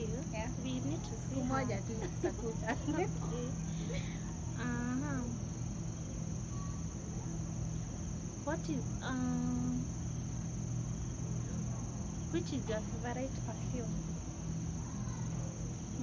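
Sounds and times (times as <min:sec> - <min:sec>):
crickets chirring: 0:00.0 - 0:16.0
low steady hum: 0:00.0 - 0:16.0
woman humming: 0:02.7 - 0:05.4.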